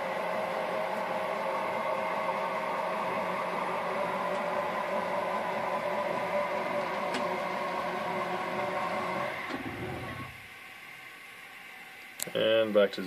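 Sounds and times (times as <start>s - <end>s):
motor whining: 3.1s - 10.5s.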